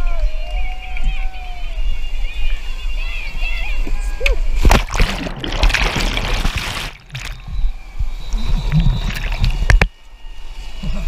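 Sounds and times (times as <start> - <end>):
loud splash: 4.6 - 7.6, 8.7 - 9.7
water splashing: 4.6 - 7.7, 8.3 - 9.9
underwater whitewater churning: 4.6 - 9.9.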